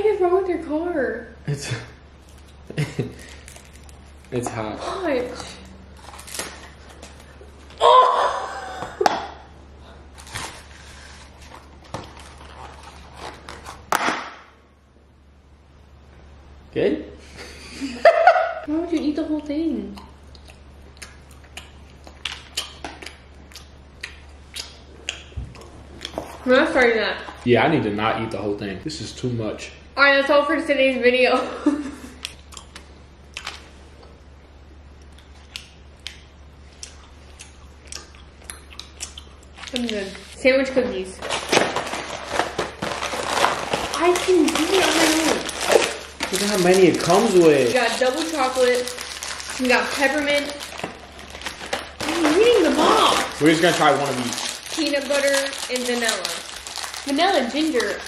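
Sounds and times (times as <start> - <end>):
snack packaging crinkling: 2.2 - 4.7, 5.3 - 7.8, 10.1 - 14.1, 38.8 - 40.4, 41.2 - 58.0.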